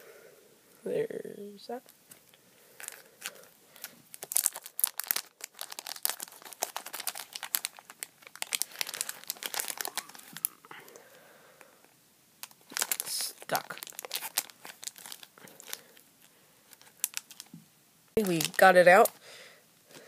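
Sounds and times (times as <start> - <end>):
plastic bag crinkling: 2.1 - 11.1, 12.4 - 17.6, 18.2 - 19.2.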